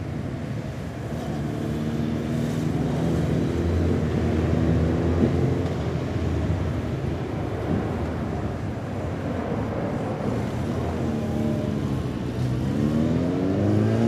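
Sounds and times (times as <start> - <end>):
motorcycle engines passing: 0.0 - 8.7, 9.7 - 14.0
street and traffic noise: 0.0 - 14.0.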